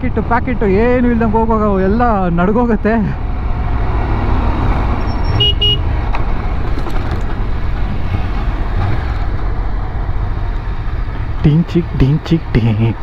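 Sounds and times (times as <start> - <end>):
motorcycle riding at speed: 2.8 - 11.4
vehicle horn tooting: 5.2 - 5.8.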